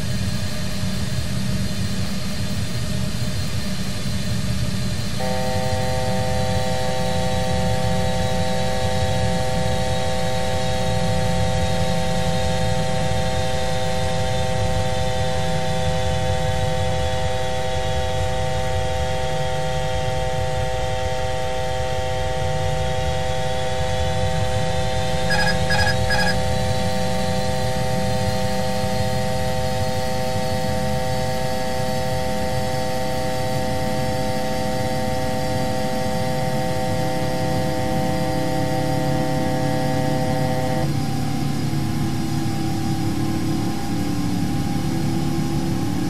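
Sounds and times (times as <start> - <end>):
cockpit hum with constant tones: 0.0 - 46.0
faint whine rising in pitch: 5.2 - 46.0
short beeps: 25.3 - 26.4.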